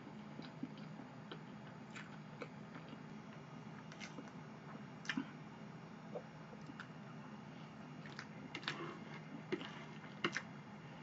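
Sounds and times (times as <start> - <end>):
quiet chewing: 0.0 - 3.1, 3.8 - 5.4, 6.1 - 7.0, 8.0 - 10.5
low steady hum: 0.0 - 11.0.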